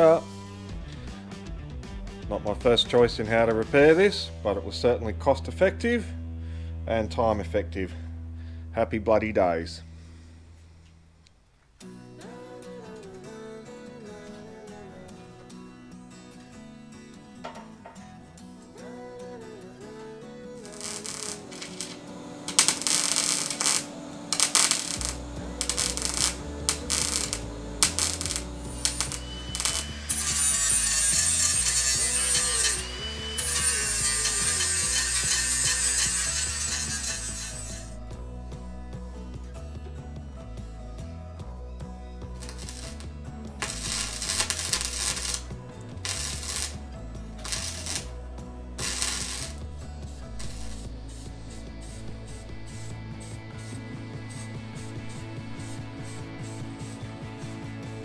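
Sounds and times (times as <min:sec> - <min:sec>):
background music: 0:00.0 - 0:10.5, 0:11.8 - 0:58.0
welder crackling: 0:20.5 - 0:38.0, 0:42.4 - 0:48.2, 0:48.8 - 0:56.9.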